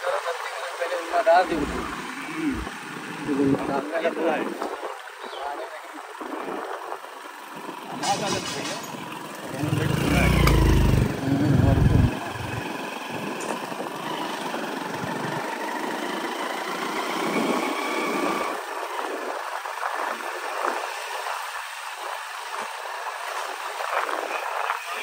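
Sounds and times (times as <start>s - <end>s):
motorbike motor: 6.0s - 20.6s
knocks and rattles from bumps: 8.0s - 9.1s.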